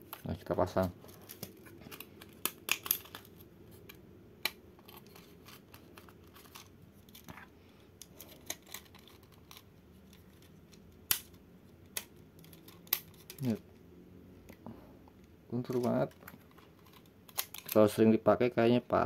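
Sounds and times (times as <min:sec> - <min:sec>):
sharp plastic snaps: 0:01.2 - 0:06.0, 0:08.0 - 0:13.6, 0:16.9 - 0:17.8.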